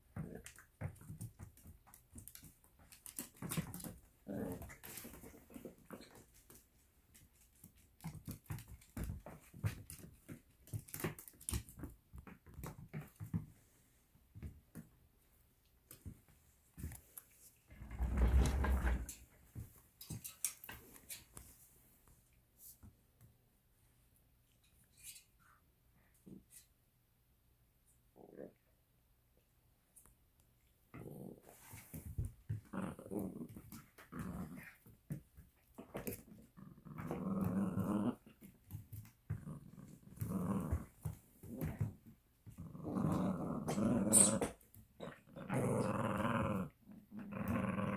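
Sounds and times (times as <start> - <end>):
dog paws tapping on hardwood floor: 0.0 - 15.1, 15.7 - 23.4, 31.6 - 45.0.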